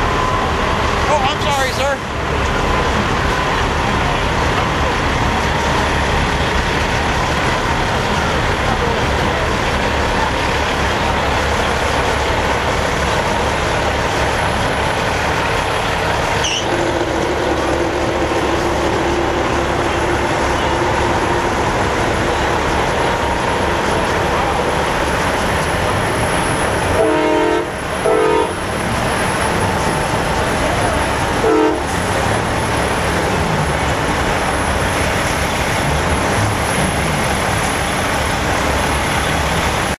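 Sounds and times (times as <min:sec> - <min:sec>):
truck diesel engines running: 0:00.0 - 0:39.9
truck air horn blasts: 0:16.4 - 0:18.6, 0:26.9 - 0:28.7, 0:31.3 - 0:32.2.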